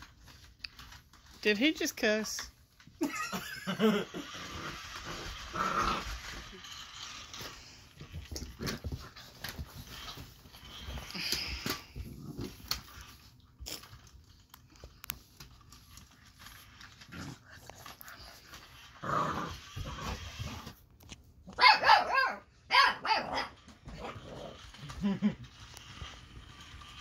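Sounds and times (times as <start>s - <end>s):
puppy growling: 3.7s - 6.7s, 11.1s - 12.8s, 16.9s - 20.7s, 23.1s - 25.5s
high puppy barks: 21.5s - 23.6s.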